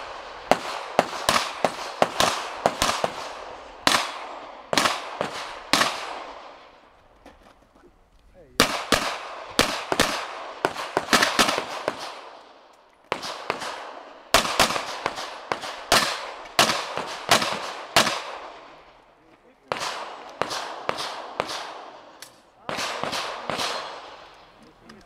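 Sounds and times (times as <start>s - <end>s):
handgun shots echoing: 19.7s - 24.4s.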